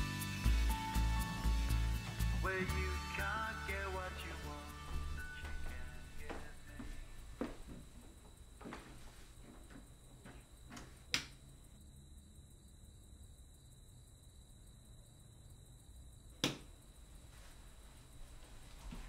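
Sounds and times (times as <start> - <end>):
faint footsteps: 4.1 - 11.4, 16.6 - 19.0.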